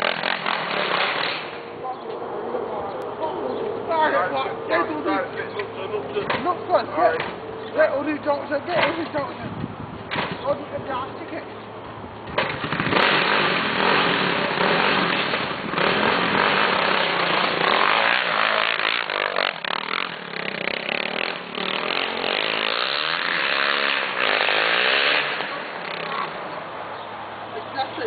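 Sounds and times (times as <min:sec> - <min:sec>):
quad bike engine revving: 0:00.0 - 0:01.7, 0:12.3 - 0:26.8.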